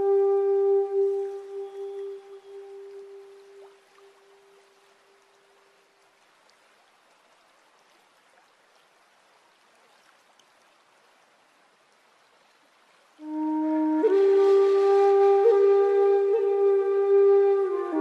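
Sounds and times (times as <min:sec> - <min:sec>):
flute music: 0:00.0 - 0:04.7, 0:13.2 - 0:18.0
water drips: 0:00.0 - 0:11.2
water trickling over stones: 0:00.0 - 0:18.0.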